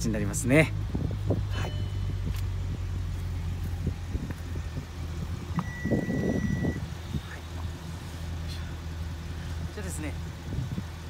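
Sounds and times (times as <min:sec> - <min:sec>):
car engine idling: 0:00.0 - 0:11.0
steady high beep: 0:01.5 - 0:02.2, 0:05.6 - 0:06.8.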